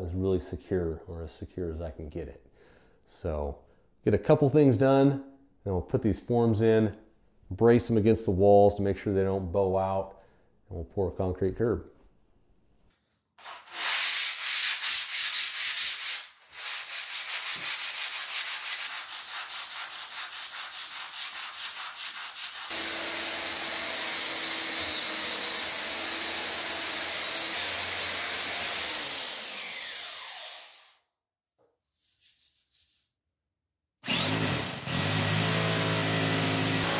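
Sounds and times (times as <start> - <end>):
hand sanding concrete floor: 13.0 - 31.0, 31.9 - 33.2, 34.2 - 36.9
angle grinder sanding concrete: 13.6 - 30.9.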